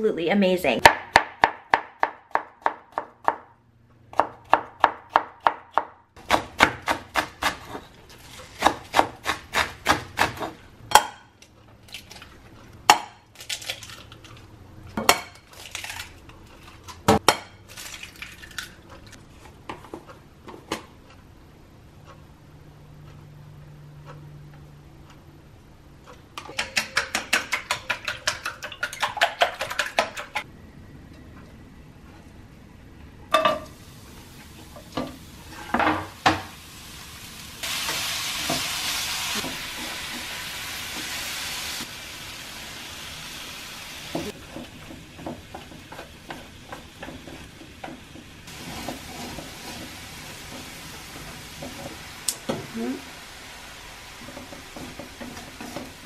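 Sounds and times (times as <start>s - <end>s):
knife chopping on wooden board: 4.1s - 7.9s
chopsticks beating eggs in bowl: 26.5s - 30.4s.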